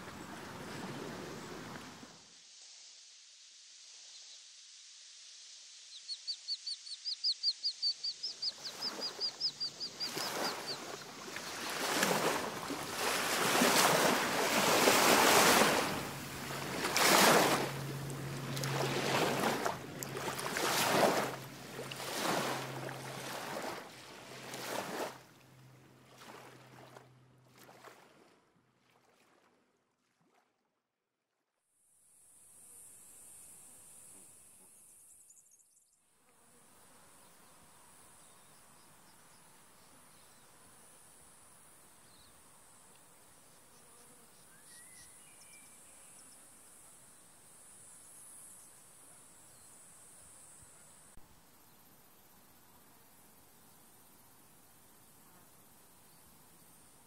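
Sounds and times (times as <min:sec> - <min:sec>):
water splashing against shore: 0:00.0 - 0:02.3, 0:08.5 - 0:30.6
bird chirping: 0:05.9 - 0:11.8.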